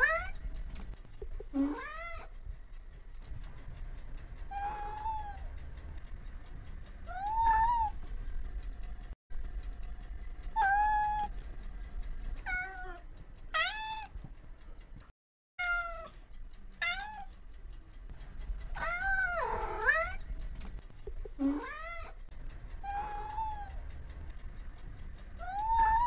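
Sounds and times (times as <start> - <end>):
cat meowing: 1.6 - 2.3, 4.5 - 5.4, 7.1 - 8.0, 10.6 - 11.3, 12.4 - 13.0, 13.6 - 14.1, 15.6 - 16.1, 16.8 - 17.3, 18.8 - 20.2, 21.4 - 22.2, 22.8 - 23.8, 25.4 - 26.0.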